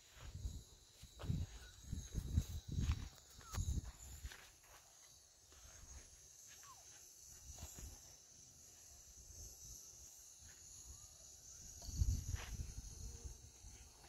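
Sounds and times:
steady high hiss: 0.0 - 14.0.

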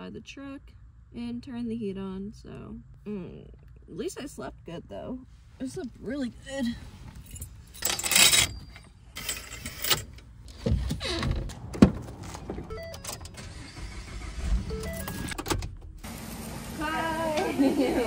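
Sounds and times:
keys going into ignition: 7.2 - 10.2, 12.1 - 15.8.

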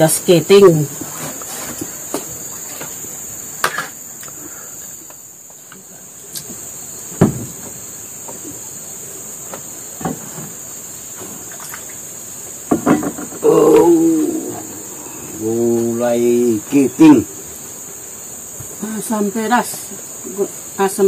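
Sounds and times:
insects droning: 0.0 - 21.0
loud thump: 7.2 - 7.6
knocks: 7.2 - 7.8.

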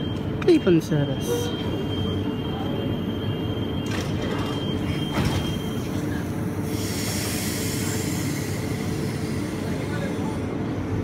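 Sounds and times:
high warning tone: 0.0 - 6.0
train doors shutting: 0.0 - 10.4
train equipment humming: 0.0 - 11.0
air hissing: 6.6 - 10.4.

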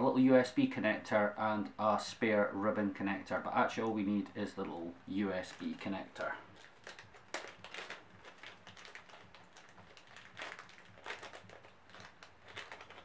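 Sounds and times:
plastic bag crinkling: 5.1 - 13.0.

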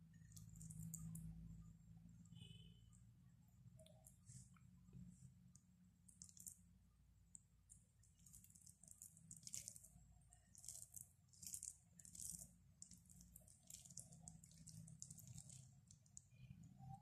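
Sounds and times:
low steady hum: 0.0 - 17.0
fingers squishing rice: 3.7 - 16.6.

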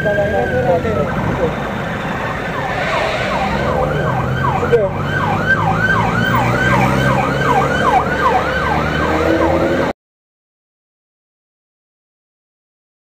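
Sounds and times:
siren yelping: 2.3 - 9.2.

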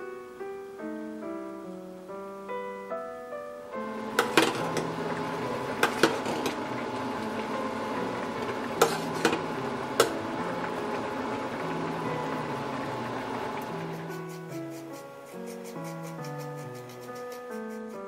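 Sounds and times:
pot bubbling: 3.8 - 16.4.

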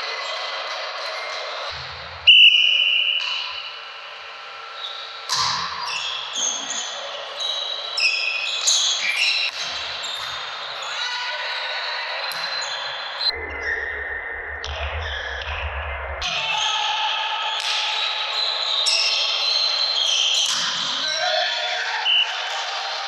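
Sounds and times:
referee's whistle: 2.2 - 3.8, 22.0 - 22.5
sneakers squeaking on court: 4.7 - 11.0.

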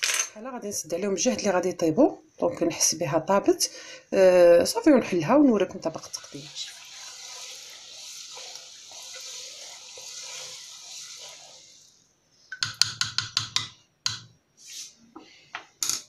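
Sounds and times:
lentils simmering in a pot: 4.3 - 13.4
wooden spoon stirring: 5.9 - 14.9
spoon tapping metal pot: 12.5 - 14.3.

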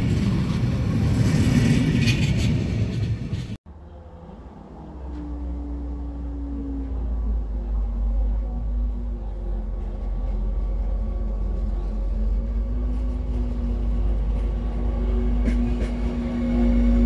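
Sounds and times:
train rumbling: 0.0 - 17.0.

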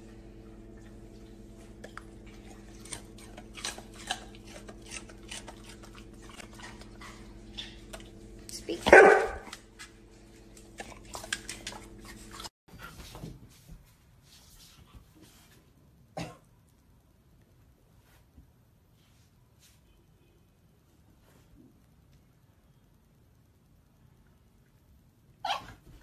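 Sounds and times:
low hum: 0.0 - 12.5
dog barking: 8.8 - 9.6, 25.4 - 25.8.

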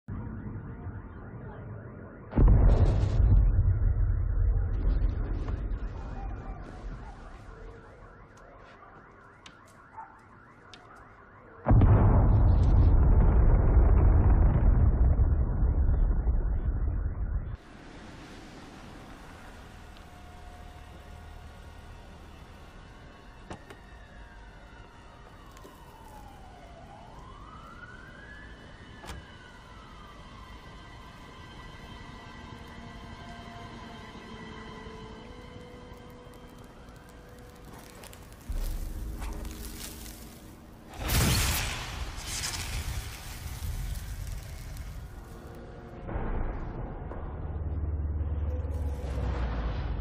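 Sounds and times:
distant alarm siren warbling: 0.1 - 12.3, 18.9 - 46.1
deep rumble: 11.7 - 17.6, 37.2 - 50.0.

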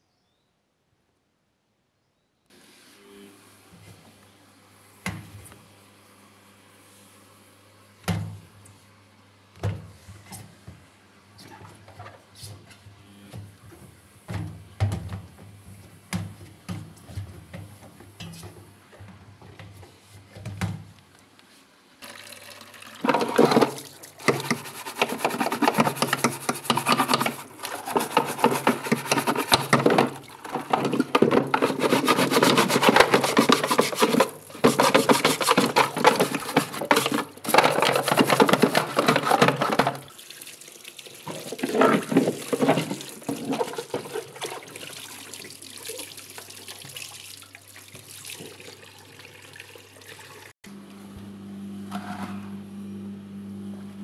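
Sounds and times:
tap water splashing on plastic: 45.9 - 47.2.

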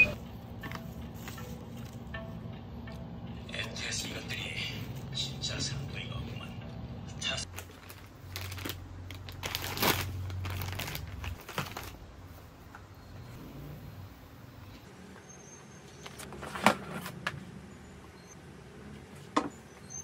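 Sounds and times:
plastic packet crinkling: 7.4 - 12.0.

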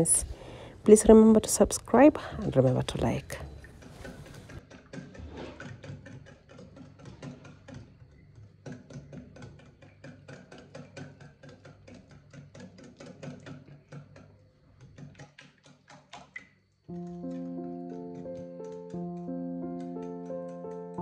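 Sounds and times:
whisk clicking against bowl: 5.6 - 16.5.

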